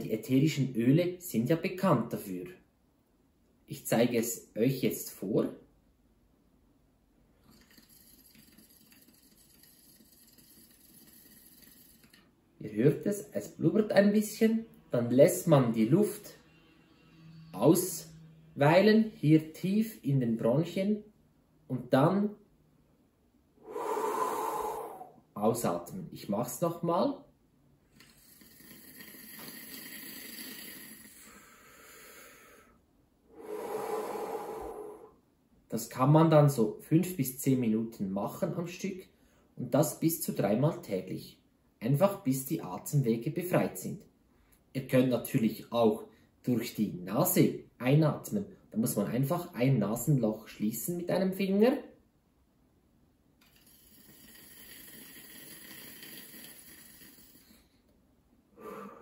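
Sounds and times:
air bubbling through oil: 0:07.4 - 0:12.2
breath drawn through inhaler: 0:07.4 - 0:12.3, 0:23.6 - 0:25.2, 0:28.0 - 0:35.2, 0:53.5 - 0:57.8, 0:58.6 - 0:59.0
person exhaling: 0:23.6 - 0:25.3, 0:28.1 - 0:35.2, 0:58.6 - 0:59.0.

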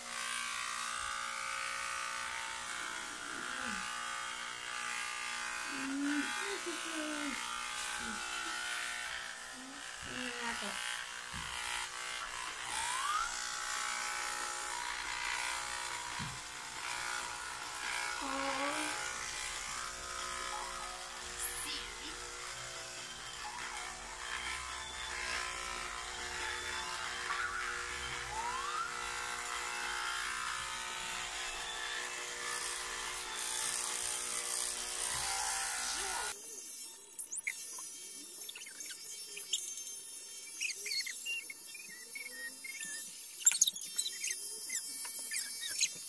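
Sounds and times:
electric hair clippers buzzing: 0:00.0 - 0:46.0.

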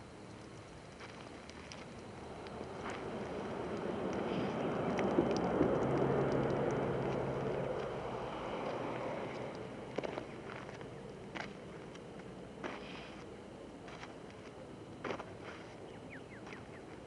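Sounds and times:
vehicle passing by: 0:02.5 - 0:11.5.

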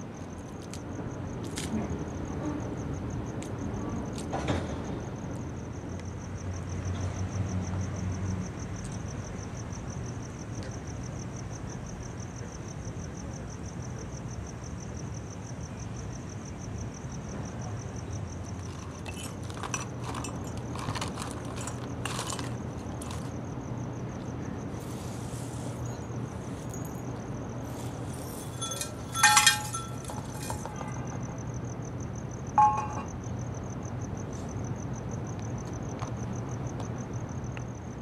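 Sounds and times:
brush sweeping into dustpan: 0:27.7 - 0:30.7.

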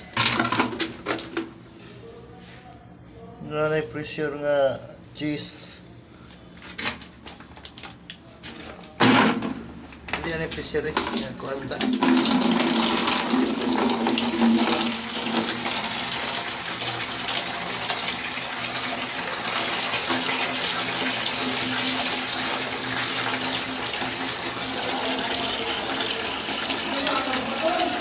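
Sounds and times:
water rushing from pipe: 0:11.0 - 0:28.0.

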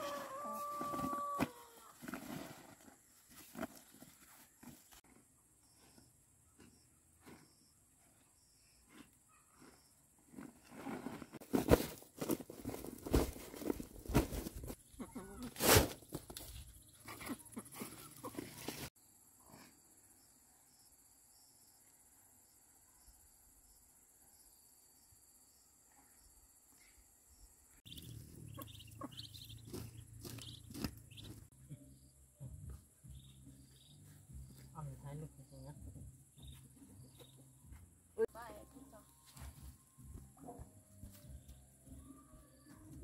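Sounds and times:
scuffs of soil and sack: 0:00.0 - 0:05.0, 0:08.9 - 0:14.8, 0:15.4 - 0:19.0
rustling in basket: 0:15.4 - 0:18.9
faint insect chirping: 0:19.0 - 0:29.6
ducklings peeping: 0:27.9 - 0:31.5.

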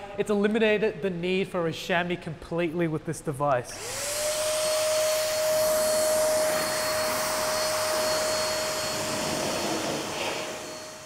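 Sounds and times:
electric blower whining: 0:03.7 - 0:11.0.

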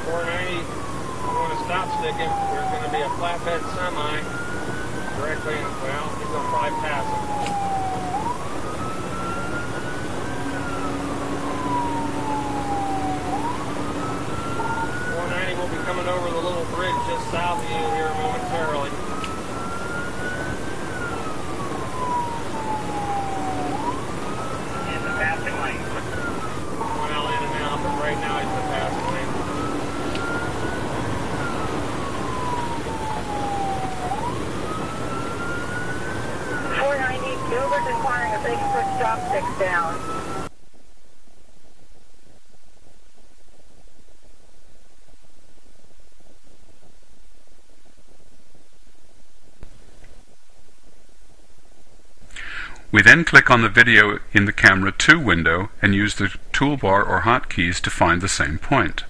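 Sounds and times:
police siren wailing: 0:00.0 - 0:40.5
road and engine noise: 0:00.0 - 0:59.0.

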